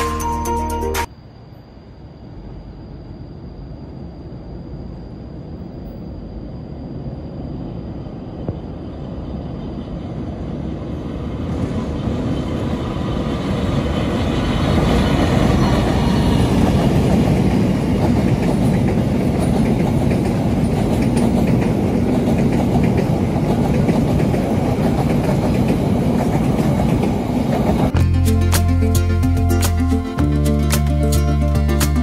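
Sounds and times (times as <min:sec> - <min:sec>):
train crossing steel bridge: 0:00.0 - 0:32.0
train wheels clattering over rails: 0:13.8 - 0:28.0.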